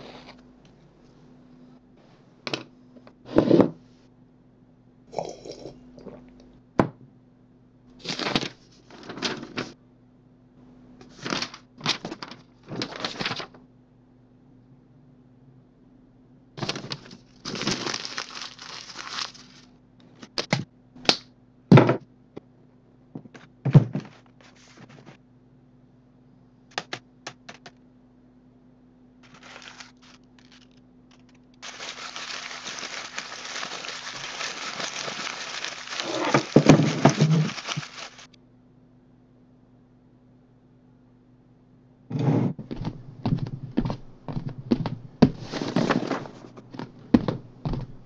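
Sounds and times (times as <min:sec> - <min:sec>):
paper rustling and crumpling: 0:08.0 - 0:09.8, 0:11.0 - 0:13.6, 0:16.6 - 0:19.7, 0:29.2 - 0:38.3.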